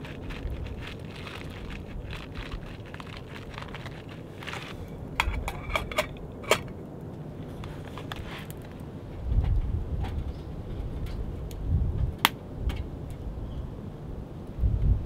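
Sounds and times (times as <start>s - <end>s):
wood fire crackling: 0.0s - 5.2s, 6.8s - 9.2s.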